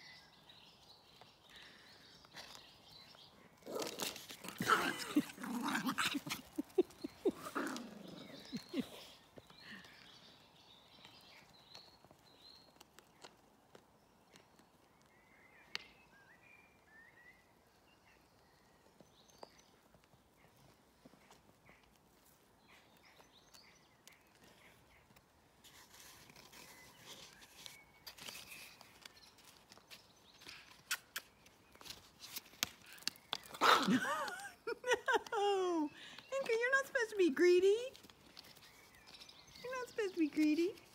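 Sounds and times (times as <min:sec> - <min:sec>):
puppies growling: 0:03.6 - 0:09.1.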